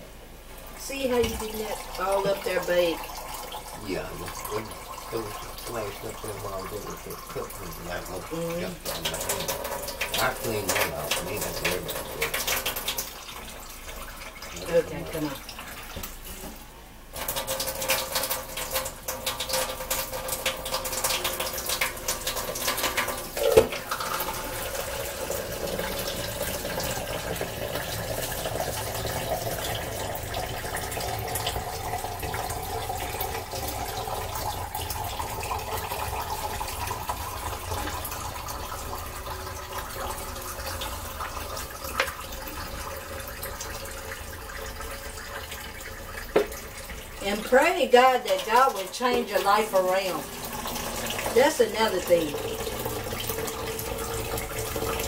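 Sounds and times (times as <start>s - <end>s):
tap water running into metal sink: 0.0s - 55.0s
water splashing over hair: 3.8s - 13.4s.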